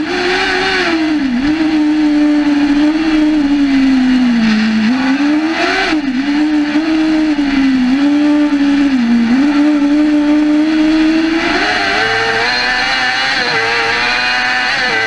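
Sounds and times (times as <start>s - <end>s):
truck engine running hard: 0.0s - 15.0s
short rushing noise: 4.4s - 6.1s.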